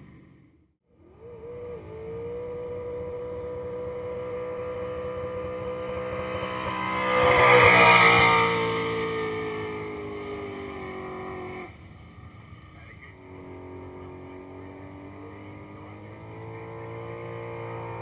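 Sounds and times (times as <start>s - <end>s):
car engine at high revs: 0.9s - 18.0s
tyres spinning in a burnout: 1.0s - 11.7s.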